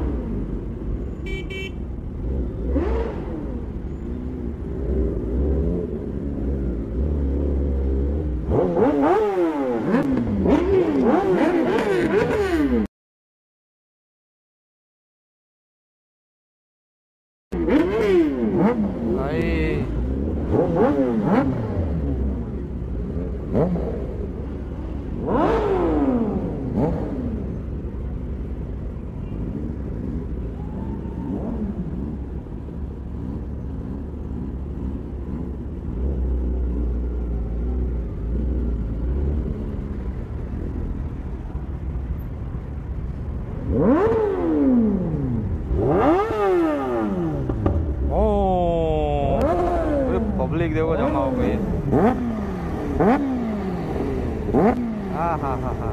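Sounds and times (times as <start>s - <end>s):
motorbike engine revving: 2.2s - 12.9s, 17.6s - 55.9s.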